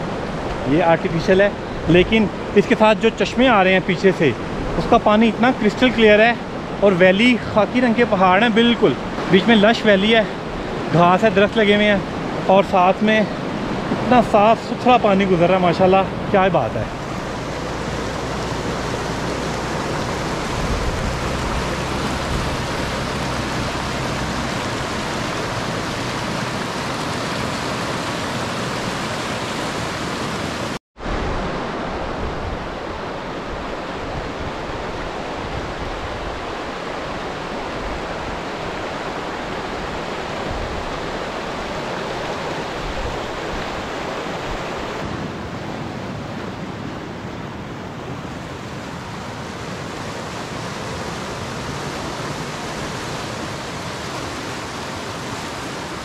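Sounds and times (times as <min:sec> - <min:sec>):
stream rushing over stones: 0:00.0 - 0:45.5, 0:47.8 - 0:56.0.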